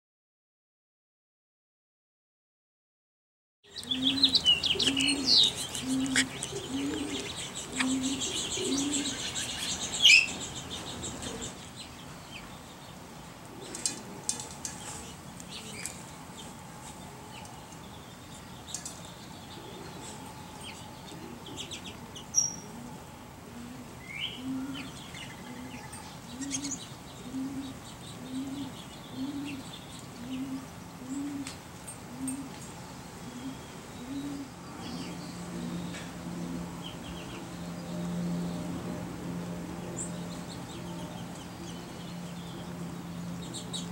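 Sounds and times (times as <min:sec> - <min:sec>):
sparrows chirping: 0:03.6 - 0:43.9
dove cooing: 0:03.7 - 0:12.1, 0:13.5 - 0:16.0, 0:19.5 - 0:37.0.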